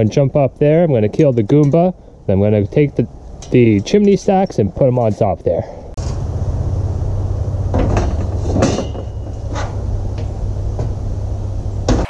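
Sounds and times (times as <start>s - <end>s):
steady low rumble: 0.0s - 12.0s
metal pipe knocks and clanks: 7.8s - 11.0s.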